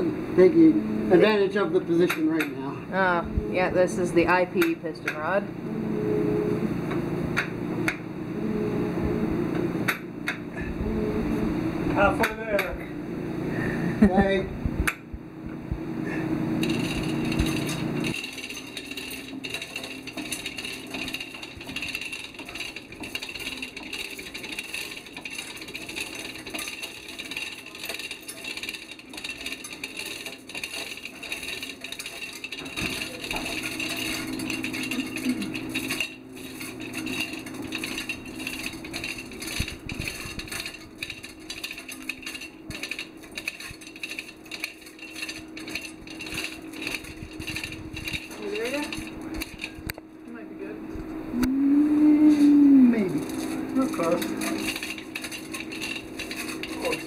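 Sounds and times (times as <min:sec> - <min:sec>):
steady hum: 0:00.0 - 0:57.0
chains clinking: 0:16.6 - 0:49.9, 0:52.2 - 0:57.0.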